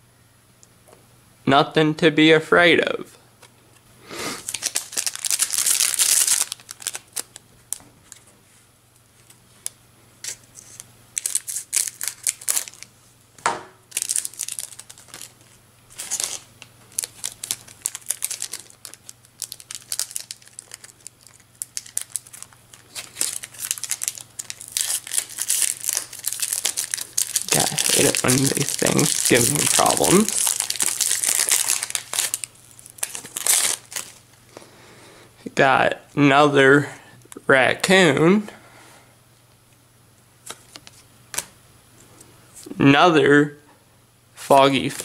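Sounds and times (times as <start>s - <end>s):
foil wrapper crinkling: 4.4s - 8.3s, 9.2s - 13.0s, 13.9s - 34.4s.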